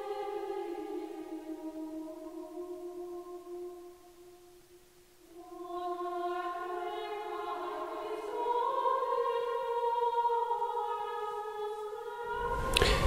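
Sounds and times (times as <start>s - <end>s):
choir singing sustained notes: 0.0s - 13.0s.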